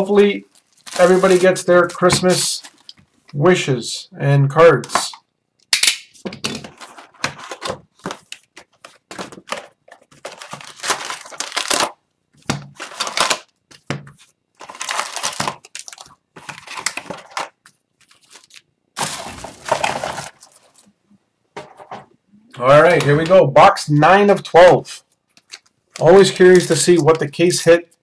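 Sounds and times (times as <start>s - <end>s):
plastic wrapper crinkling and tearing: 0.0s - 3.1s, 6.7s - 20.9s, 25.2s - 27.4s
cardboard box rustling: 19.0s - 20.8s.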